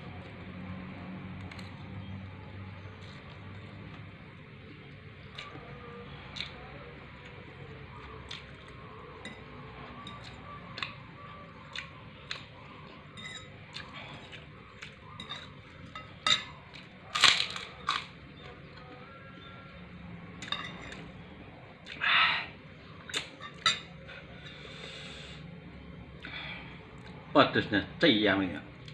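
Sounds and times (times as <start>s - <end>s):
cutlery clinking on a plate: 13.2s - 13.8s, 15.2s - 16.6s, 20.4s - 21.0s, 23.2s - 23.9s
cutlery clatter: 15.2s - 16.6s, 20.4s - 21.0s.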